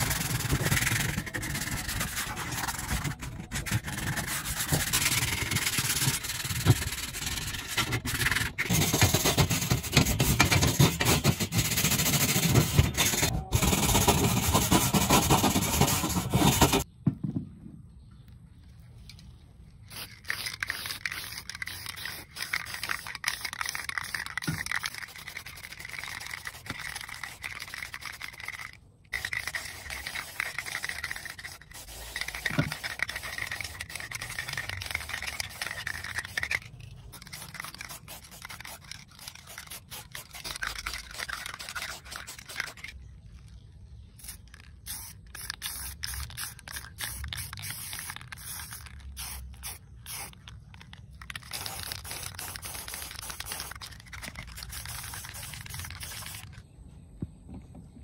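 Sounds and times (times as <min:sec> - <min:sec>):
spray paint can hissing: 0:00.0 - 0:16.9, 0:19.8 - 0:43.0, 0:44.2 - 0:56.6.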